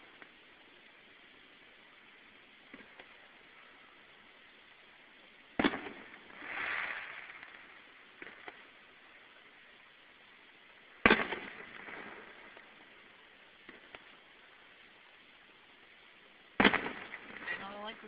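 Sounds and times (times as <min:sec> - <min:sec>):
firework shells booming: 0:05.5 - 0:08.7, 0:11.0 - 0:12.9, 0:16.6 - 0:18.0
faint pops: 0:05.6 - 0:08.7, 0:11.0 - 0:12.9, 0:13.6 - 0:14.2.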